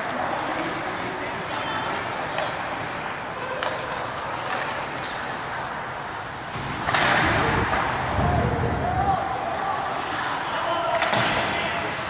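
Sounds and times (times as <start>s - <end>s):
skates on ice: 0.0s - 12.0s
hockey stick clicks: 3.5s - 5.3s.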